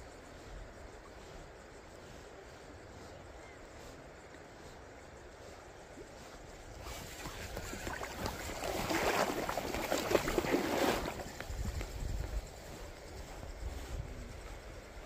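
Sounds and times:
water splashing and sloshing: 0:05.4 - 0:12.8.

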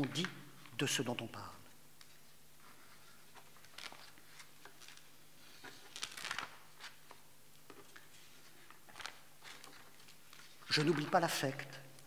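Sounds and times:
faint steady hum: 0:00.0 - 0:12.0
paper sheets rustling: 0:02.0 - 0:11.6.

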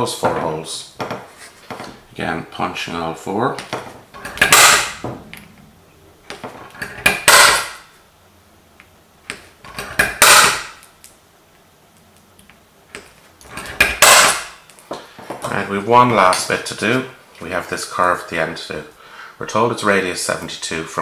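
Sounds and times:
punch cracking on sheet metal: 0:04.3 - 0:05.4, 0:06.9 - 0:07.9, 0:09.9 - 0:10.8, 0:13.8 - 0:14.6.

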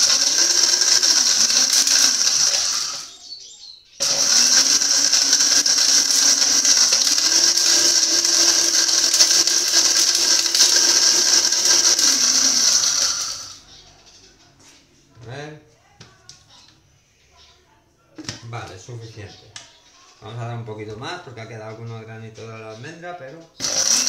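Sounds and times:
blender grinding: 0:00.0 - 0:03.1, 0:04.0 - 0:13.6, 0:23.6 - 0:24.0.

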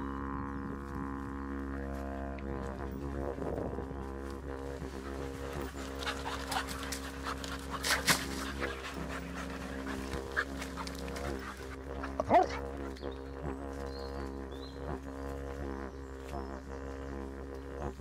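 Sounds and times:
didgeridoo drone: 0:00.0 - 0:18.0
dogs moving about: 0:05.0 - 0:12.7.

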